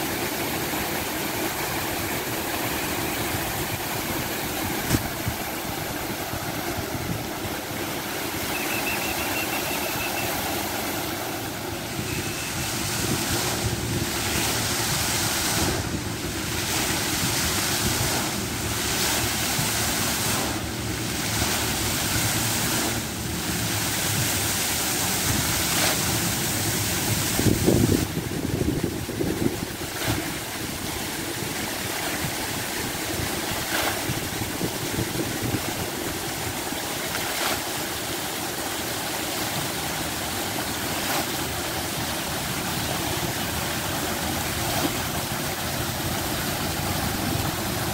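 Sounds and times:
fountain jets splashing into pool: 0.0s - 47.9s
wind on microphone: 3.2s - 7.7s, 26.8s - 30.5s, 32.2s - 36.7s.

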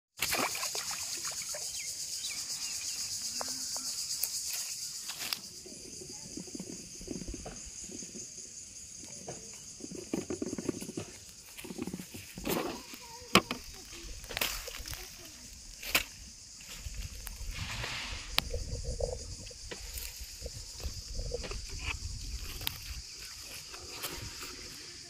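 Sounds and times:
high-pitched insect chorus: 0.2s - 25.0s
footsteps through grass: 13.7s - 18.2s.

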